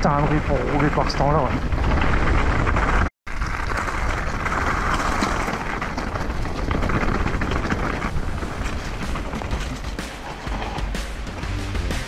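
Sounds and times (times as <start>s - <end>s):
mountain bike rattle and tyre noise: 0.0s - 12.0s
wind buffeting microphone: 4.0s - 10.7s.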